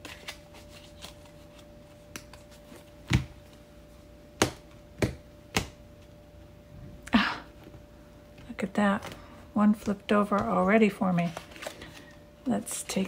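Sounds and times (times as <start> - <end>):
sharp deck taps: 4.4 - 5.8.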